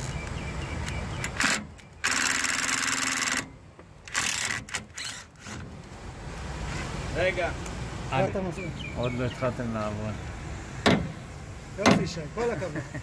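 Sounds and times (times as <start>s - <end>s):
cordless drill spinning screw: 1.3s - 3.5s, 4.1s - 5.6s.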